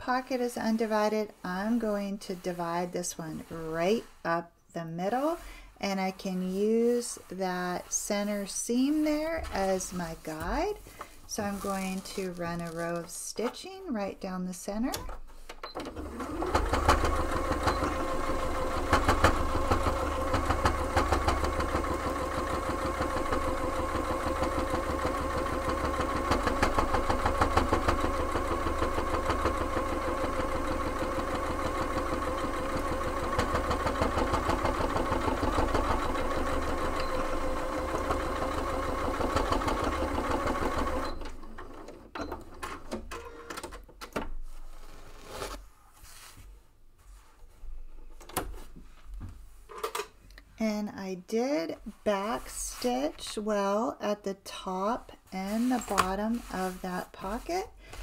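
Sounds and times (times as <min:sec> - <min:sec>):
sewing machine stitching: 0:15.7 - 0:43.7.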